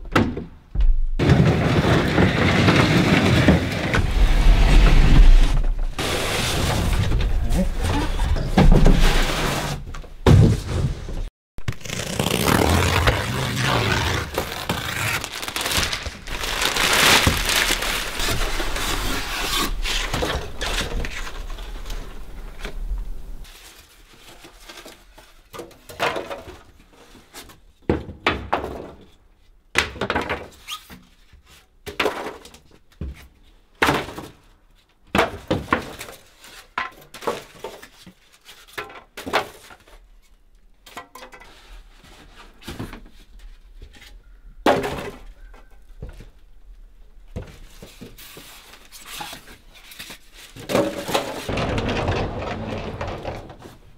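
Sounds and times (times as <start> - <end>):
packing pieces thunking on wooden deck: 0.0 - 11.3, 12.4 - 23.1, 24.3 - 30.7, 31.8 - 40.1, 49.1 - 53.9
packing material rustling and scraping: 1.6 - 9.9, 10.6 - 25.5.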